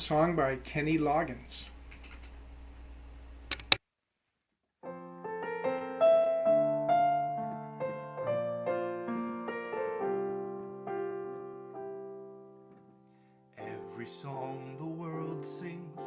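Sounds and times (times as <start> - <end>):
sharp clicks: 3.5 - 3.8
electronic keyboard piano chords: 4.8 - 13.0.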